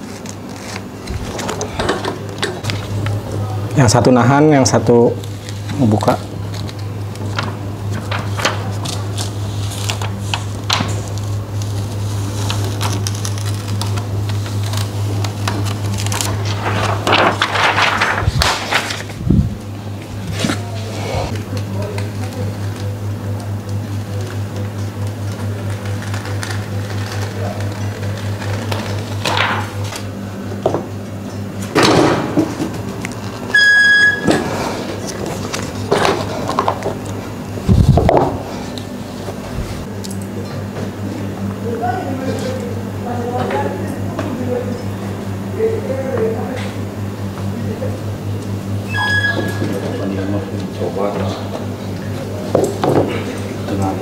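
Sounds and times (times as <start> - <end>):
steady low hum: 0.0 - 54.0
plastic film peeling crackles: 5.2 - 19.2, 25.2 - 29.3
rustling and scraping: 6.5 - 19.6
timer beep: 33.5 - 34.3.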